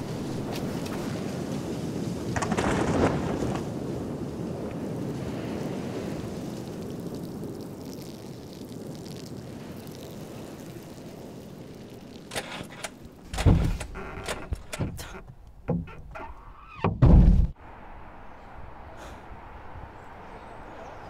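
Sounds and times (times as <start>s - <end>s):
knocks and rustles inside car: 13.3s - 16.2s, 16.8s - 17.6s
heavy thump: 16.8s - 17.6s.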